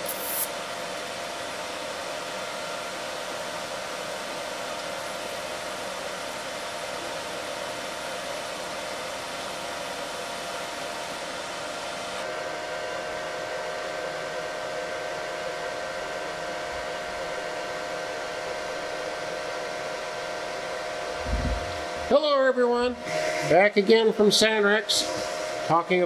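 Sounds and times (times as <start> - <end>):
plasma welder hiss and whir: 0.0 - 0.6
faint hum: 20.8 - 23.3.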